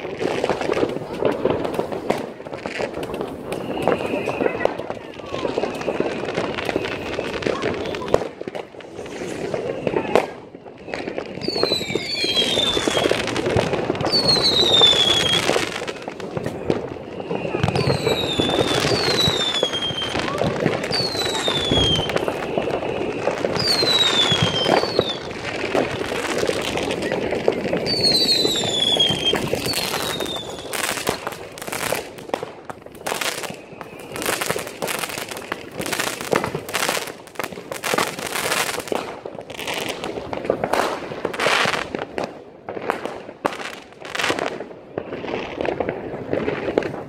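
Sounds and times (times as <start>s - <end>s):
firework bangs: 0.0s - 47.0s
fireworks crackling: 0.0s - 47.0s
firework whistles falling in pitch: 3.5s - 4.7s, 10.9s - 13.2s, 14.1s - 15.8s, 17.0s - 25.3s, 27.8s - 31.0s.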